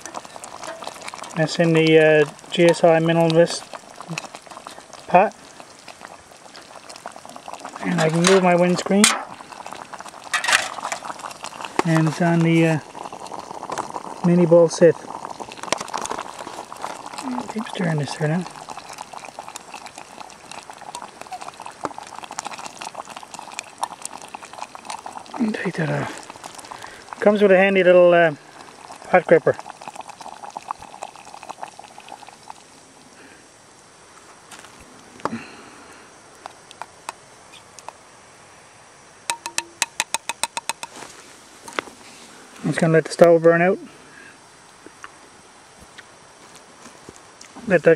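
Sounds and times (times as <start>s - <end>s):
soft bubbling: 0.0s - 33.8s, 39.3s - 44.0s
metal cookware clinking: 10.3s - 11.0s
spork tapping metal pot: 39.3s - 41.0s.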